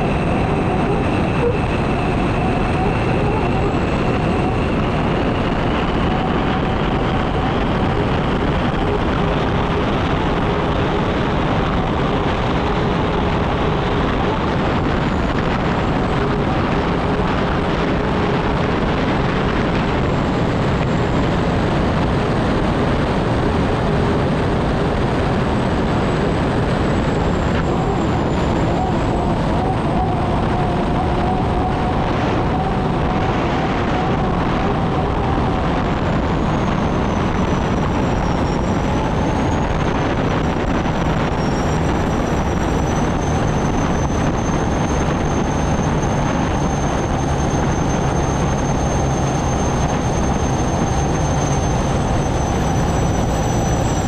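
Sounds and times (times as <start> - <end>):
rushing wind and water: 0.0 - 54.0
turbine engine high whine: 0.0 - 54.0.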